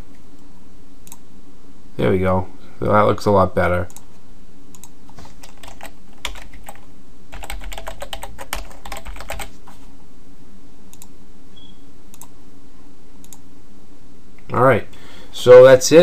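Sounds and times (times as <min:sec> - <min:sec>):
steady low hum: 0:00.0 - 0:16.0
typing on computer keyboard: 0:04.8 - 0:09.5.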